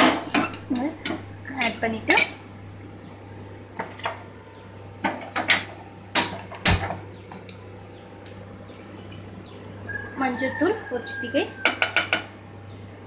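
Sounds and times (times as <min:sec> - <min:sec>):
utensils clinking on metal pot: 0:00.0 - 0:02.4, 0:11.6 - 0:12.3.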